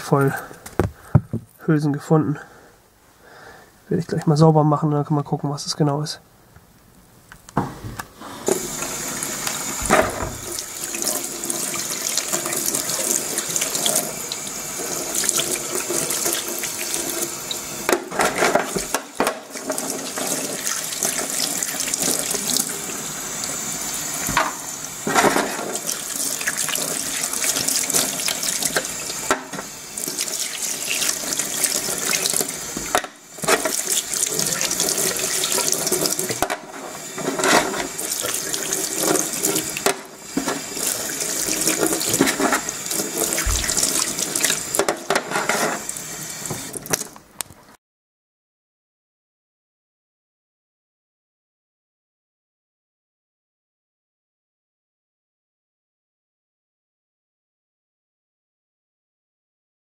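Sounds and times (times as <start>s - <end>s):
metal cases rinsed in water: 8.4s - 47.1s
tap running into steel sink: 24.2s - 24.7s, 43.3s - 44.0s.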